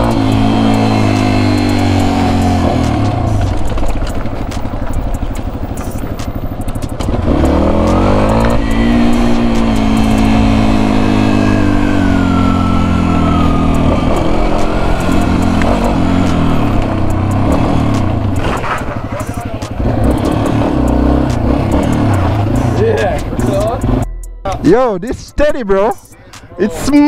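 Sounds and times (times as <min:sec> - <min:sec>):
motorcycle engine revving: 0:00.0 - 0:24.1.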